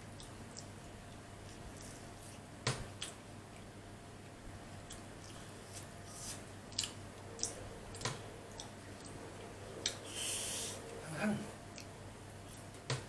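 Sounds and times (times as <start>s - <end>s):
person chewing: 0.2s - 11.0s, 11.6s - 12.8s.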